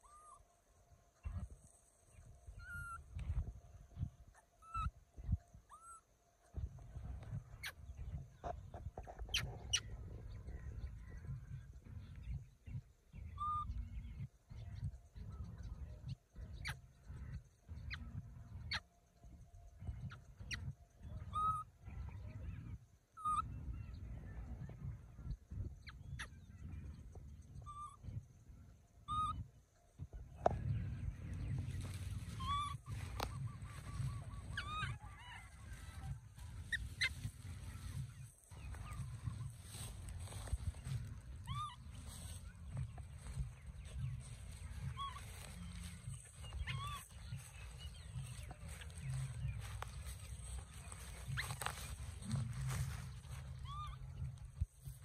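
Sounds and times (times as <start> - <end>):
low rumble: 30.0 - 55.0
baby monkey crying: 32.2 - 39.2, 53.2 - 54.4.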